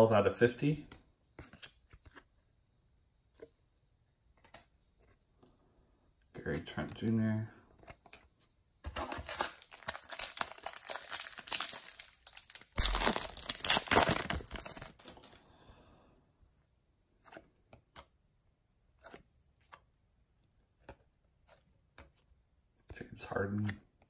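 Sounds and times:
wrapper tearing and crinkling: 9.1s - 15.3s.

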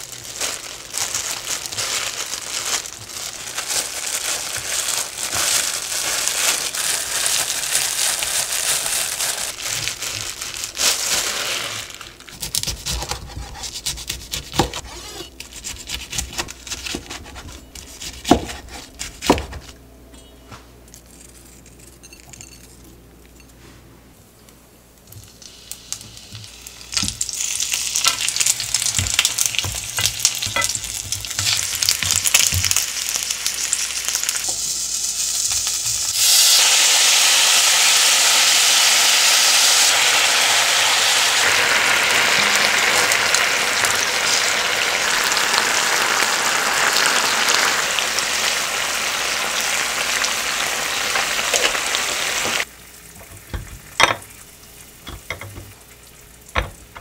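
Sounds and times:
plastic gloves crinkling: 0.0s - 12.8s, 26.2s - 36.7s
food sizzling in frying pan: 25.2s - 57.0s.

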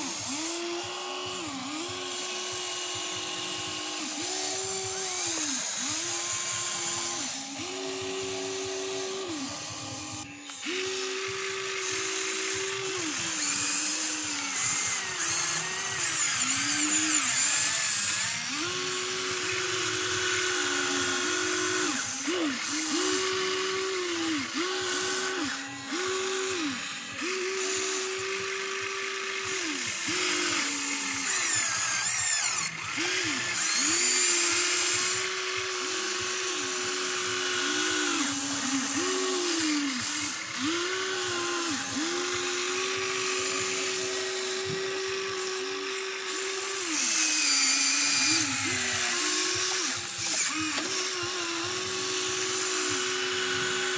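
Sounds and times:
toy excavator motors whining: 0.0s - 53.9s.

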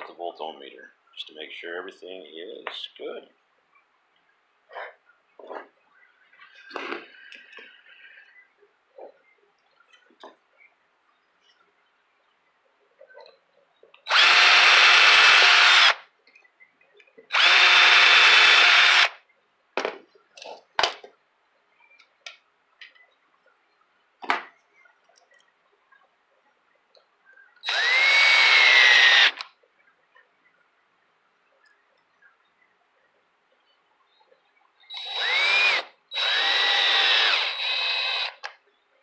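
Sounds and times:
power drill driving screws: 14.1s - 16.0s, 17.3s - 19.2s, 27.6s - 29.4s, 34.9s - 38.5s.

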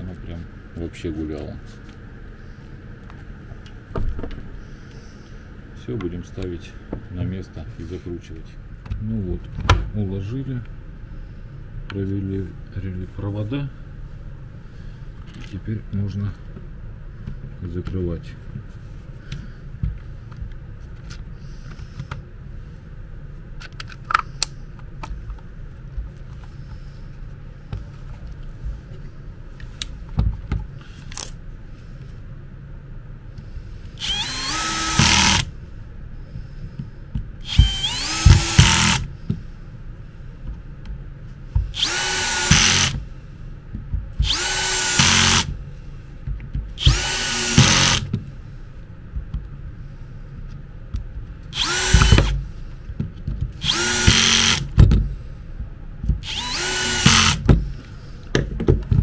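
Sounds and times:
power screwdriver driving screws: 34.0s - 35.5s, 37.4s - 39.1s, 41.8s - 43.0s, 44.2s - 45.6s, 46.8s - 48.1s, 51.6s - 52.4s, 53.6s - 54.8s, 56.2s - 57.5s
parts clicking and knocking: 36.8s - 39.4s, 46.2s - 48.3s, 50.5s - 59.0s.

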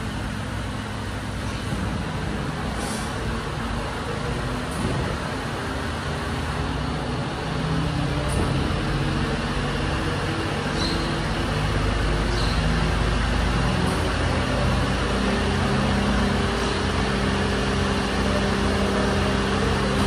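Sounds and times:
truck diesel engine running: 0.0s - 20.0s
faint high squeaks: 10.8s - 11.2s.

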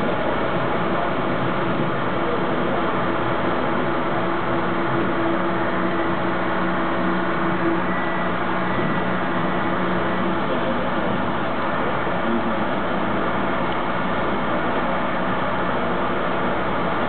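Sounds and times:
constant hum: 0.0s - 17.0s
subway train wheels rumbling: 0.0s - 17.0s.

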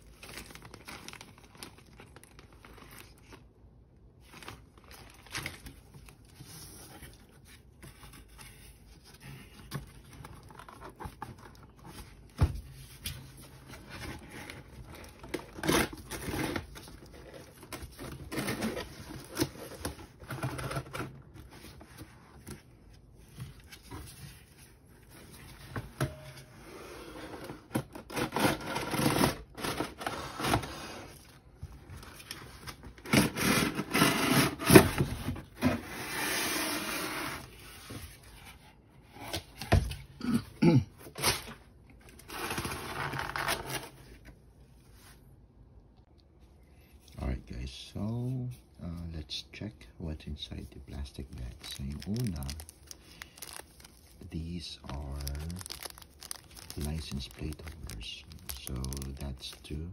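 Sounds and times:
packaging rustling and crinkling: 0.0s - 26.2s, 50.9s - 59.9s.

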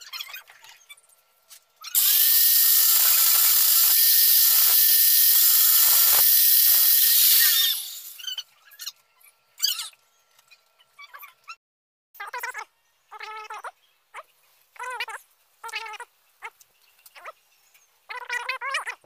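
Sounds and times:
electric grinder grinding metal: 2.0s - 8.3s.

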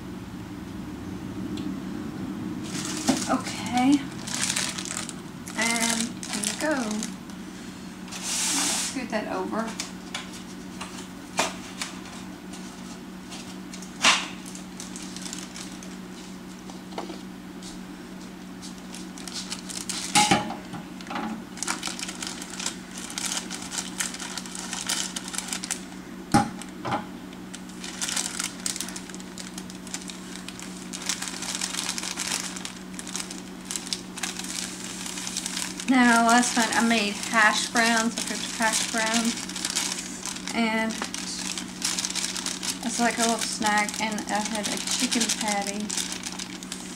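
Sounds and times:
steady low hum: 0.0s - 46.9s
crinkling: 2.6s - 7.5s, 13.3s - 16.8s, 18.6s - 25.9s, 26.5s - 46.9s.

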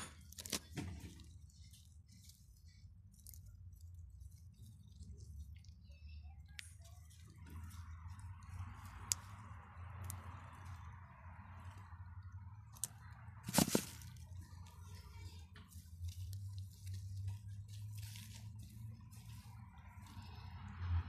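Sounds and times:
hand rustling through soil: 13.4s - 20.5s.

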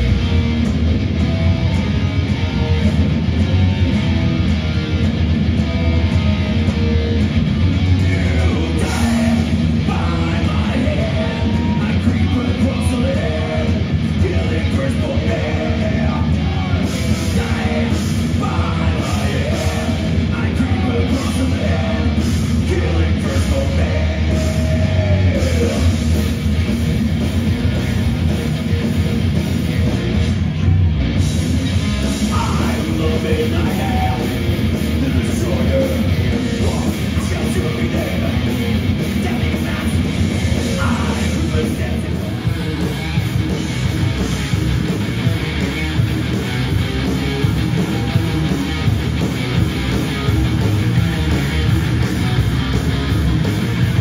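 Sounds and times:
heavy metal band playing live: 0.0s - 54.0s
person singing: 8.0s - 26.0s.

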